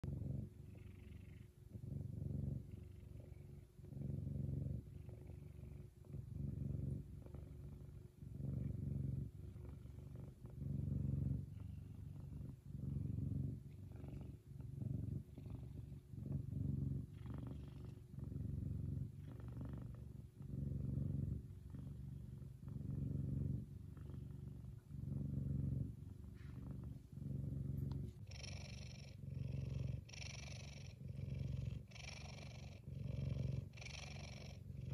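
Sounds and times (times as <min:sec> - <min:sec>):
cat purring loudly: 0:00.0 - 0:34.9.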